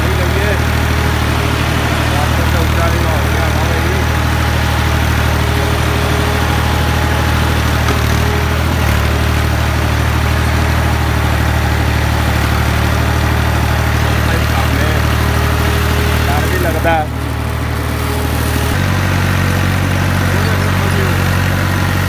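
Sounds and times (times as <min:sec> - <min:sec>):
tractor diesel engine running: 0:00.0 - 0:22.0.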